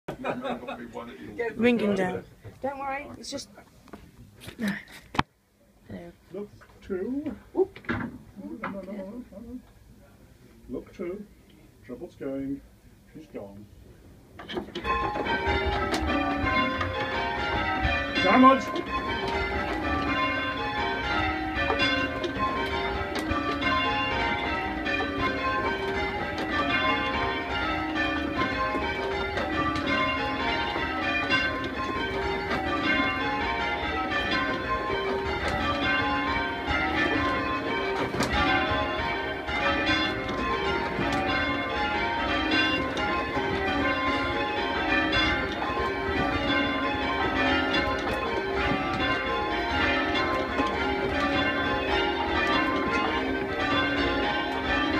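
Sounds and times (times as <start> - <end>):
church bells ringing: 14.4 - 54.9.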